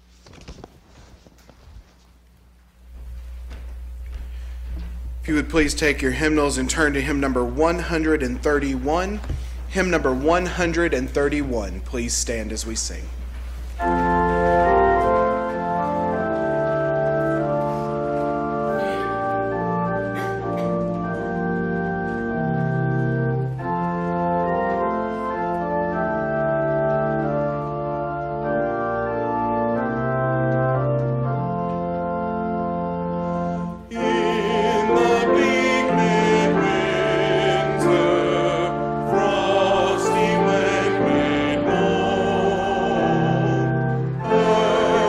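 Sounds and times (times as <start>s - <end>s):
church organ playing chords: 2.8s - 45.0s
congregation singing: 13.8s - 31.8s, 32.7s - 45.0s.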